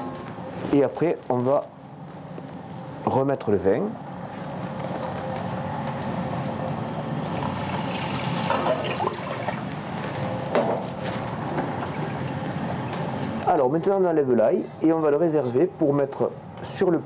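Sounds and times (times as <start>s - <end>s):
liquid sizzling in a saucepan: 6.7s - 10.3s
wine pouring: 7.2s - 9.8s, 11.7s - 12.4s.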